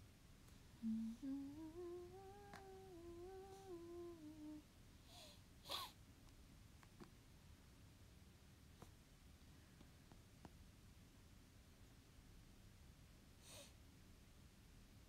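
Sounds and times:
woman humming a tune: 0.8 - 4.7.

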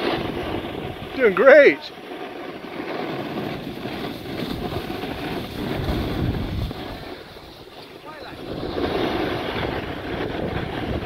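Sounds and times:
skis sliding on packed snow: 0.0 - 11.0
wind buffeting microphone: 0.0 - 11.0.

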